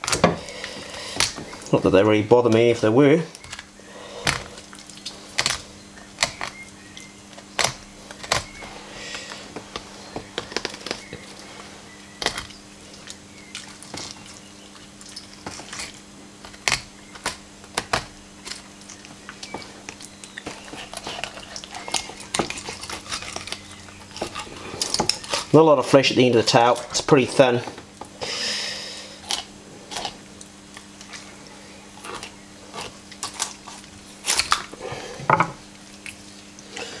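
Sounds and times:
steady low hum: 0.0 - 37.0
knife scraping: 20.5 - 25.6.

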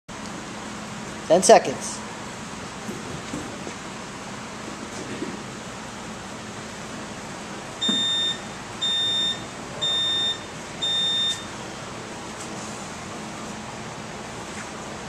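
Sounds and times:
timer beeping: 7.8 - 11.5.

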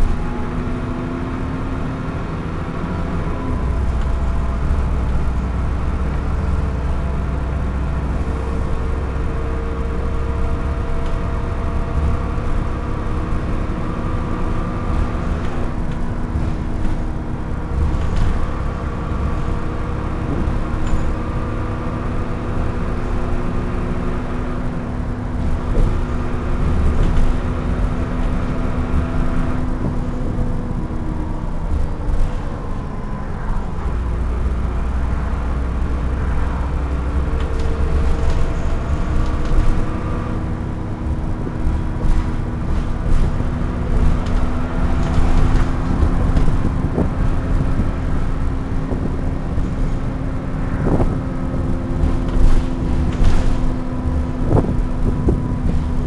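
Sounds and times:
bus engine drone: 0.0 - 56.0
bodywork clicks and knocks: 41.0 - 50.2, 50.8 - 56.0.

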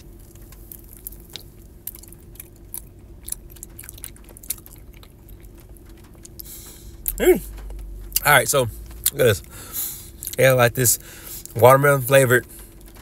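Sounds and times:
steady low hum: 0.0 - 13.0
chewing gummy candy: 0.2 - 8.4.

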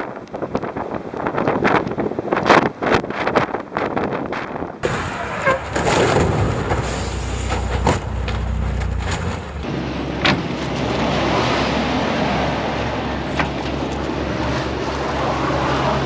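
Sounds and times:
traffic rumble: 0.0 - 16.0
low engine hum: 4.8 - 16.0.

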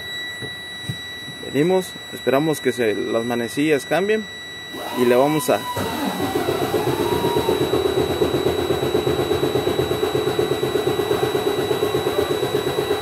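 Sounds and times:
warning buzzer steady high tone: 0.0 - 13.0
diesel engine starting and running: 4.8 - 13.0.

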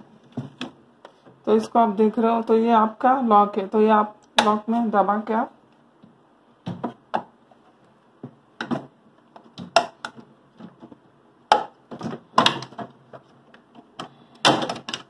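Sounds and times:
plastic clicks and knocks: 8.2 - 15.0.

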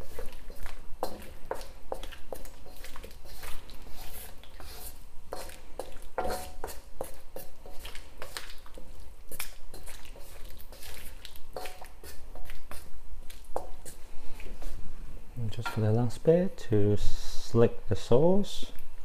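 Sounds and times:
spatula scraping a wok: 0.0 - 14.8
wet squishing of food: 0.0 - 14.8.

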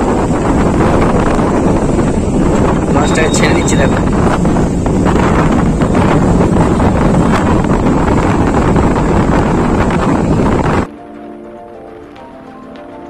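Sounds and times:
wind buffeting microphone: 0.0 - 13.0
background music: 10.8 - 13.0.

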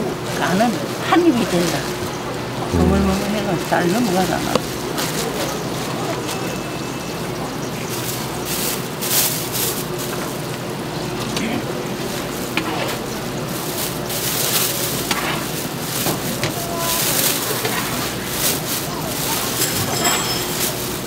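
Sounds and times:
plastic bag crinkling: 18.2 - 21.0.

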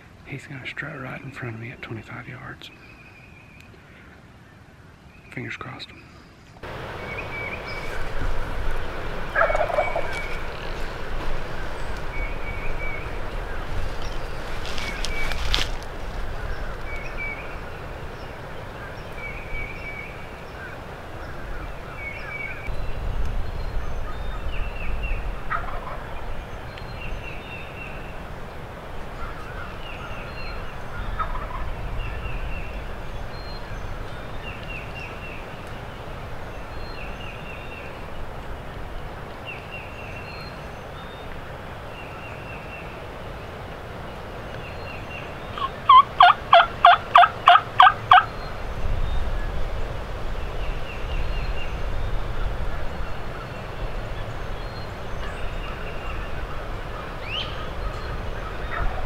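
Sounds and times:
wind on microphone: 6.6 - 40.0, 43.2 - 59.0
distant turkey gobbling: 9.3 - 10.9, 25.5 - 26.2, 31.1 - 31.7, 45.6 - 48.3.

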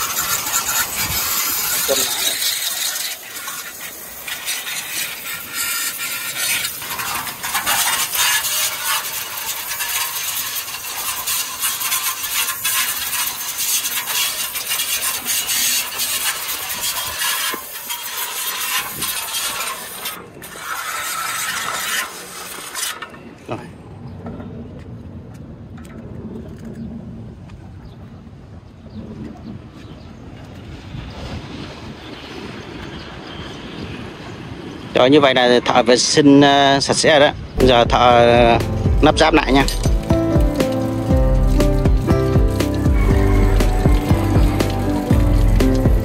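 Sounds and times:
water spraying on metal: 0.0 - 23.4, 37.6 - 46.0.

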